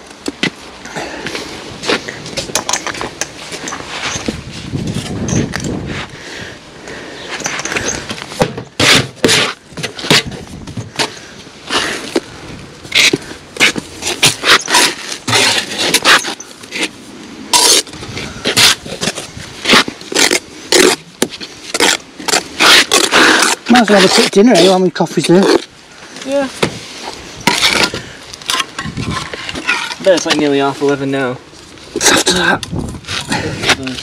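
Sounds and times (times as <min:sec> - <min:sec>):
trowel scraping mortar: 0:08.7 - 0:10.4, 0:12.9 - 0:25.7.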